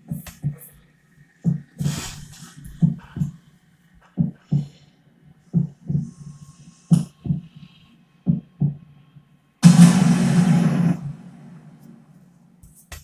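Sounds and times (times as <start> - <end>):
low heartbeat-like thumps: 1.4 - 2.0, 2.7 - 3.3, 4.2 - 4.8, 5.6 - 6.2, 6.9 - 7.5, 8.3 - 8.8, 9.6 - 12.0.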